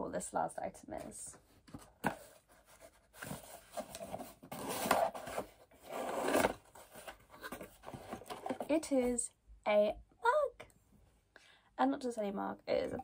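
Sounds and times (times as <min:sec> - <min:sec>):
packaging rustling and scraping: 0:01.7 - 0:08.8.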